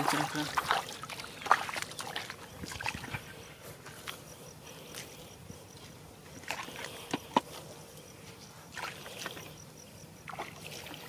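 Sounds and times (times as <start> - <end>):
splashing in muddy water: 0.0 - 3.9, 6.4 - 7.5, 8.6 - 9.6, 10.2 - 11.0.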